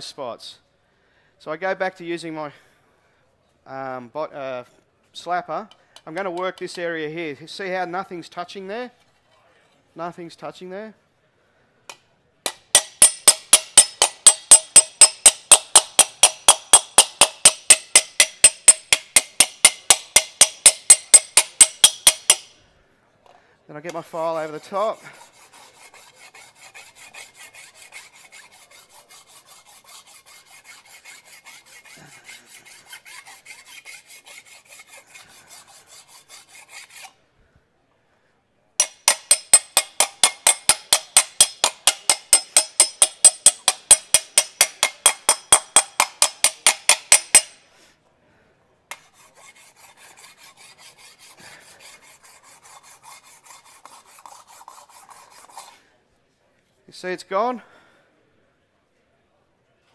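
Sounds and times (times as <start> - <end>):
hand file rasping on metal: 12.5 - 22.5, 24.1 - 37.2, 38.8 - 47.6, 48.9 - 55.8.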